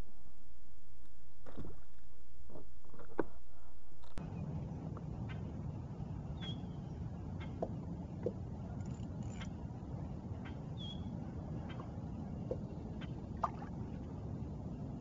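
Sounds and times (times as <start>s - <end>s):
steady low rush: 0.0s - 8.9s.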